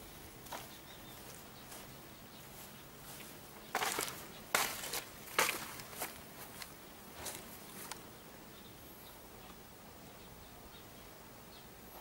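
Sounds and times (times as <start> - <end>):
low steady background noise: 0.0 - 12.0
footsteps crunching on dry leaves: 0.4 - 8.0.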